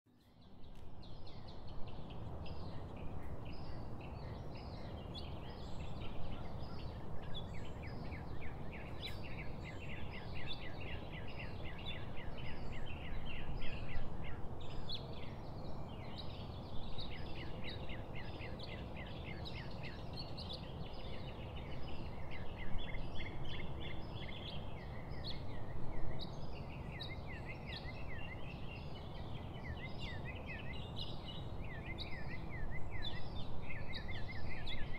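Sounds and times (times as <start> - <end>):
low background noise: 0.1 - 34.9
small birds chirping: 0.1 - 34.9.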